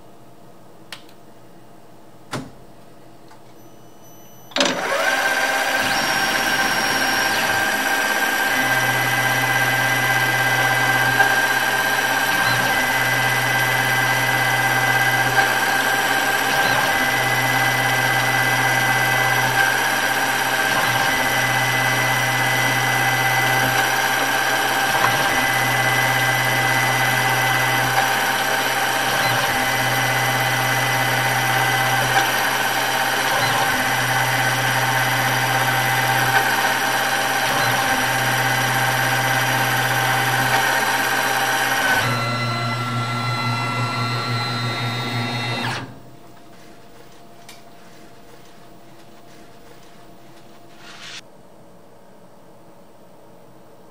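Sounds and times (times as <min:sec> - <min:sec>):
low hum switching on and off: 0:04.5 - 0:46.1
mill spindle running: 0:04.5 - 0:46.4.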